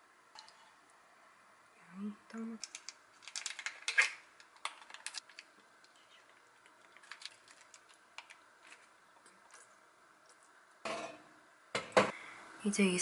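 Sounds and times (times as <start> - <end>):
plastic wrapper crinkling: 2.6 - 9.7.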